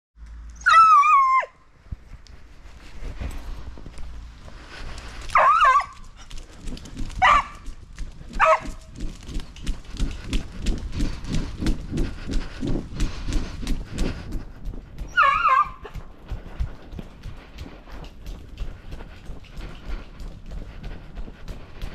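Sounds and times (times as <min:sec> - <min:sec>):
dog whining: 0:00.6 - 0:01.5, 0:05.4 - 0:06.0, 0:15.1 - 0:16.0.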